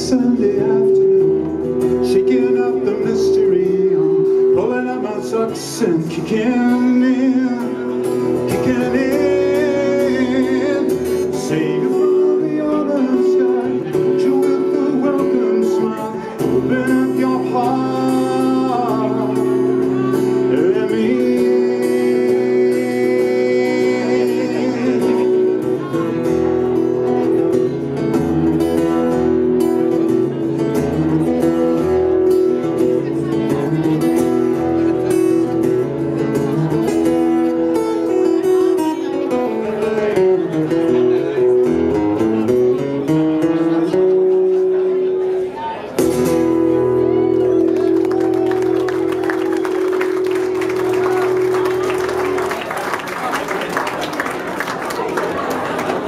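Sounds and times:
man singing: 0.0 - 26.6, 36.7 - 45.0
acoustic guitar: 0.0 - 56.0.

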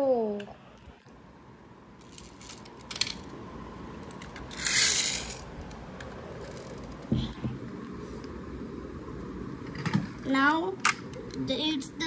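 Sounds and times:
toy truck rolling on floor: 2.0 - 3.3, 4.0 - 5.5, 6.4 - 7.0.

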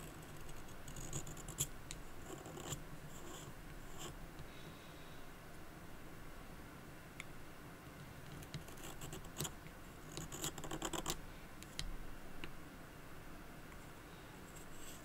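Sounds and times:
knife shaving pencil wood: 0.0 - 4.2.

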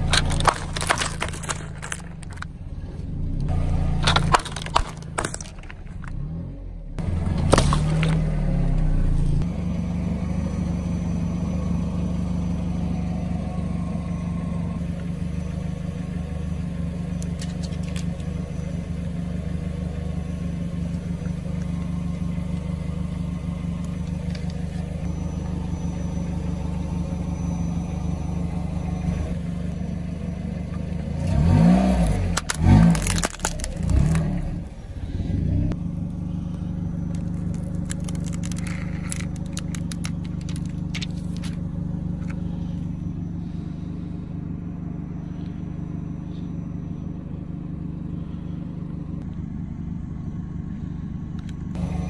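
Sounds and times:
tyre crunching objects: 0.0 - 2.5, 3.9 - 6.3, 7.2 - 8.3, 31.3 - 34.6, 37.1 - 41.6
car engine idling and revving: 0.0 - 52.0.

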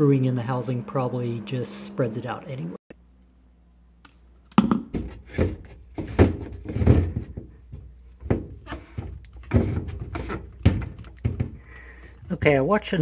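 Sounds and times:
plastic knocks and thunks: 4.6 - 11.6.

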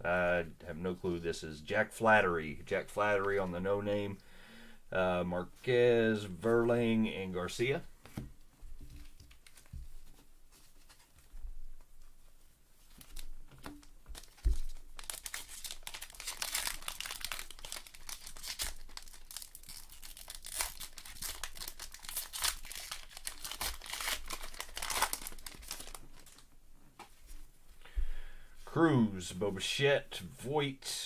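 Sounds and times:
wrapper tearing and crinkling: 13.0 - 26.5.

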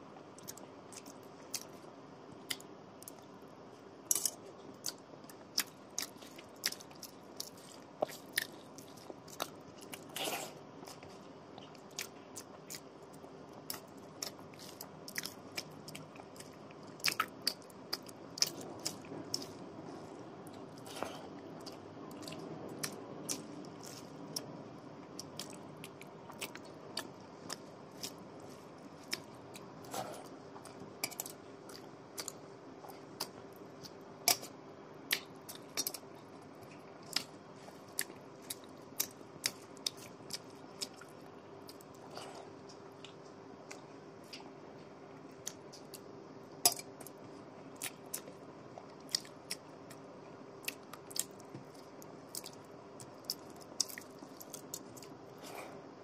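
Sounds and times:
faint steady hum: 0.0 - 56.0
chewing and mouth smacks: 13.7 - 24.5, 25.1 - 34.5, 35.1 - 44.5, 47.8 - 50.0, 50.6 - 55.8.

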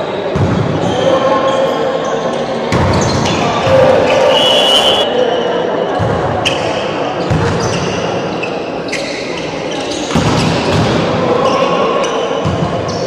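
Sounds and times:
voices in echoing hall: 0.0 - 13.0
shoes squeaking on court: 7.2 - 10.8.

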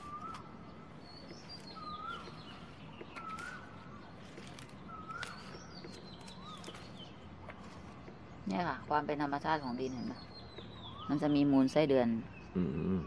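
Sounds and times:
high sliding bird chirps: 0.0 - 7.0
bird calling: 0.0 - 8.3
low steady background noise: 0.0 - 13.0.

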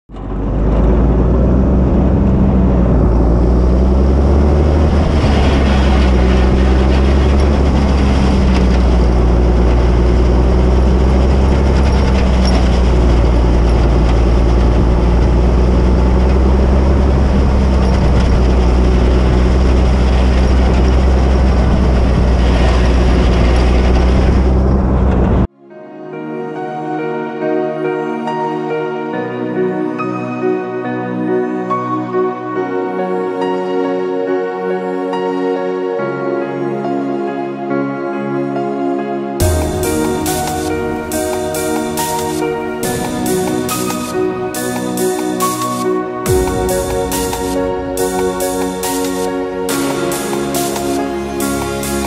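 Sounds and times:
plow pushing snow: 0.1 - 25.5, 39.4 - 52.0
tractor diesel engine under load: 0.1 - 25.5, 39.4 - 52.0.

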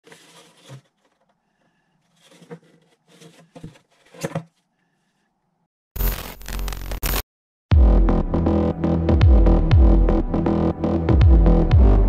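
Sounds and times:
plastic box rustling and scraping: 0.0 - 1.4, 2.0 - 4.7.

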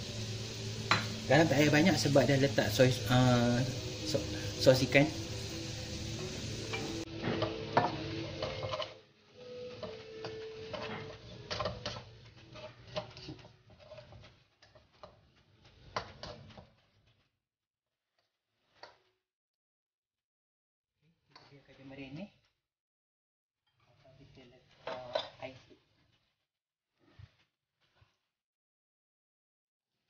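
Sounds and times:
spatula scraping a wok: 0.0 - 17.4, 18.0 - 19.2, 23.6 - 28.4.

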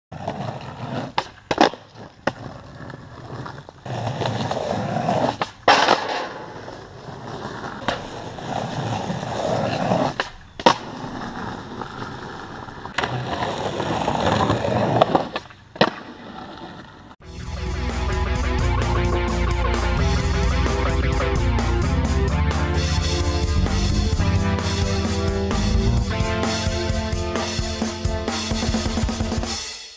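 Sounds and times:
skateboard wheels rolling on concrete: 0.1 - 29.5
skateboard wooden clacks: 0.3 - 17.0.

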